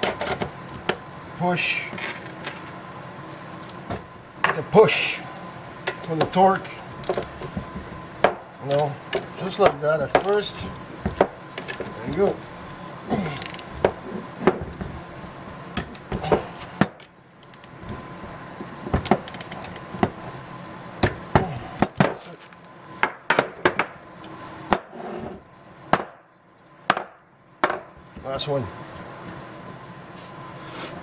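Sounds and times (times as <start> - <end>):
torque wrench metal clicks: 7.0 - 7.3, 13.4 - 13.7, 17.4 - 17.7, 19.2 - 19.9.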